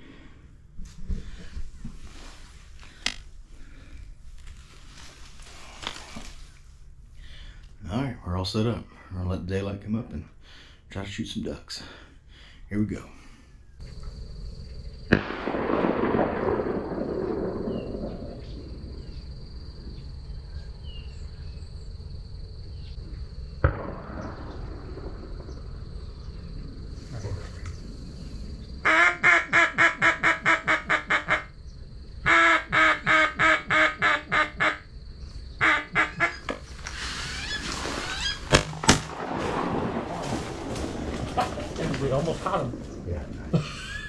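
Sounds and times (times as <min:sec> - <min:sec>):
duck quacks: 0:32.3 - 0:34.8, 0:35.6 - 0:36.5.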